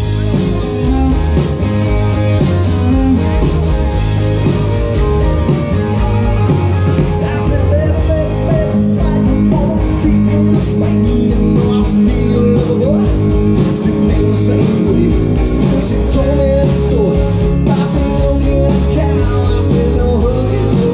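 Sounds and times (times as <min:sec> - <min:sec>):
live rock band playing: 0:00.0 - 0:20.9.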